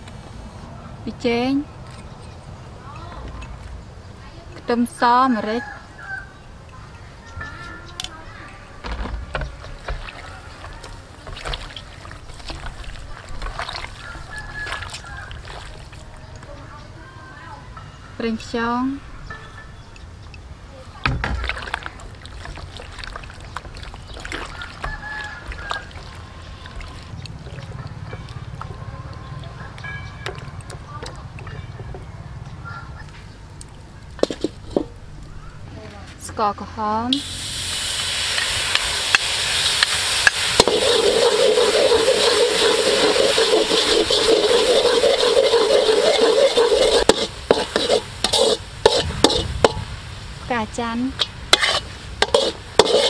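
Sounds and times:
wet squelches and slaps: 9.9s - 14.0s, 14.6s - 16.0s, 21.4s - 28.0s
metal spatula scraping a wok: 34.2s - 35.0s, 40.1s - 49.8s, 51.2s - 53.0s
sauce sizzling in a wok: 37.1s - 53.0s.

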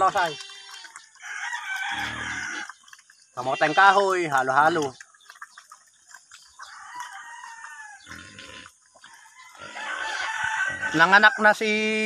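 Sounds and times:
rooster crowing: 1.2s - 2.6s, 6.6s - 8.1s, 9.2s - 11.5s.

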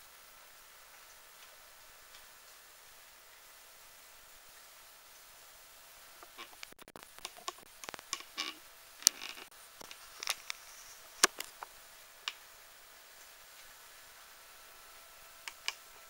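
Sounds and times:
low room hiss: 0.0s - 16.0s
sharp clicks: 6.3s - 10.6s, 11.2s - 11.7s, 15.5s - 15.8s.

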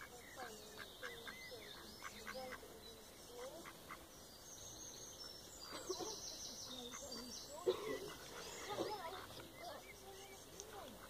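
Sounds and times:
ducks quacking: 0.0s - 4.1s, 5.6s - 11.0s.

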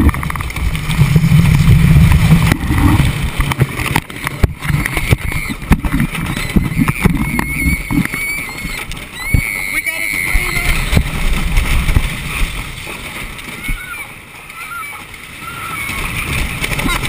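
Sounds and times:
roller coaster on wooden track: 0.0s - 17.0s.

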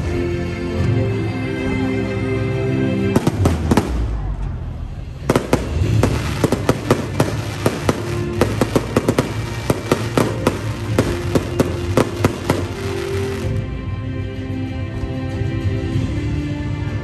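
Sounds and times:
music playing: 0.0s - 17.0s
fireworks banging: 3.2s - 4.5s, 5.2s - 13.7s.

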